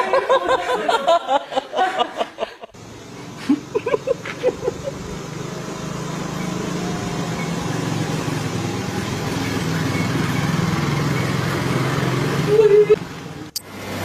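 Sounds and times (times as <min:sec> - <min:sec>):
motorcycle engine running: 0:02.8 - 0:14.0.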